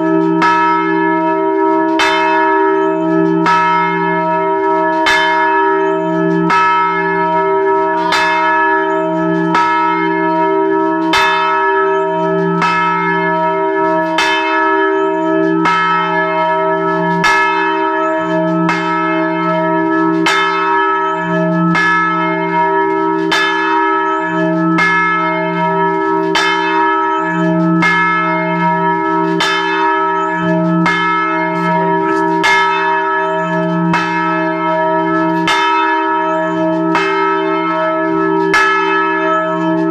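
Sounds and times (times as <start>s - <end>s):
large church bell ringing: 0.0s - 39.9s.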